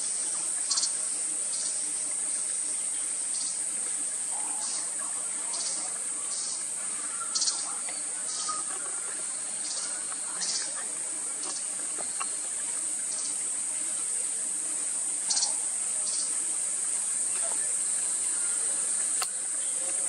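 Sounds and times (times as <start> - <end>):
insects buzzing: 0.0 - 20.0
raspy insect chirps: 0.6 - 2.0, 4.3 - 10.8, 15.1 - 16.6.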